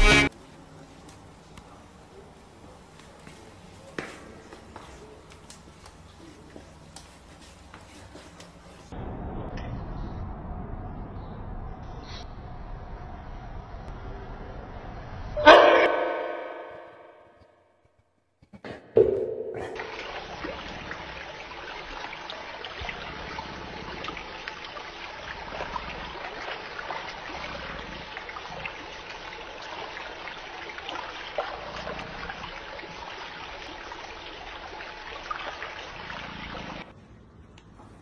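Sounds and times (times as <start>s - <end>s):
water spraying from sprinkler jets: 19.8s - 36.9s.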